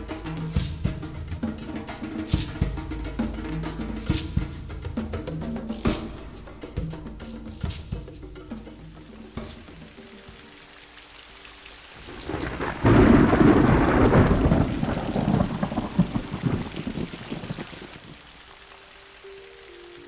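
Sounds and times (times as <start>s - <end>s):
thunder and rain: 12.0s - 19.8s.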